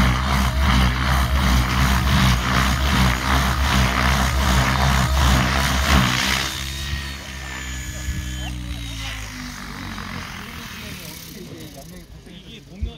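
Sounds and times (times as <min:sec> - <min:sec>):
low motor hum: 0:00.0 - 0:12.9
model helicopter rotor whooshing: 0:00.0 - 0:12.9.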